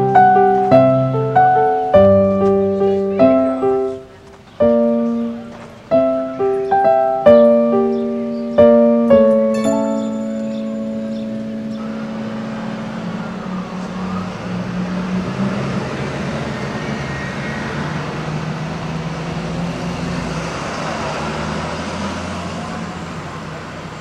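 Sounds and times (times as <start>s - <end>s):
piano note: 0.0s - 15.4s
city street traffic: 0.0s - 24.0s.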